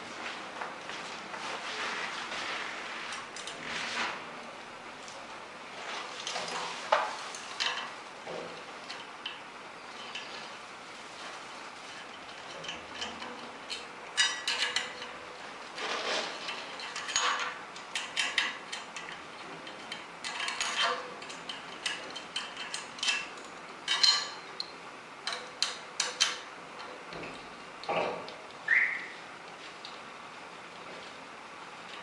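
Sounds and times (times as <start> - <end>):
metal parts clicking and scraping: 7.3 - 8.0, 11.9 - 24.4.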